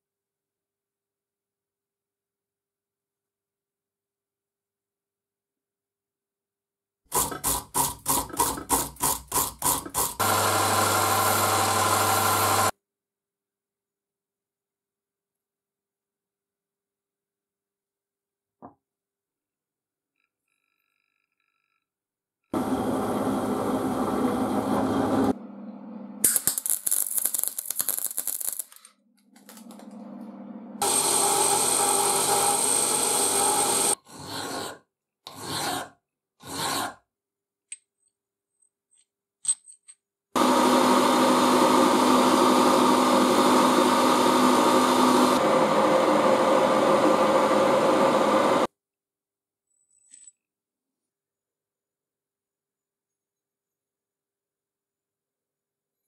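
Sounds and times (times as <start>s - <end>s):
milling machine cutting steel: 7.1s - 12.7s, 29.5s - 34.8s, 40.4s - 48.7s
hand file on steel: 34.1s - 37.0s.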